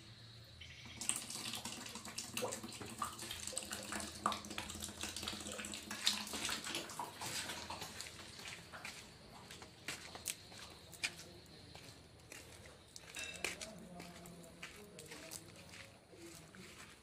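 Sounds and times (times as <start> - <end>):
water splashing in plastic basin: 1.0 - 9.0.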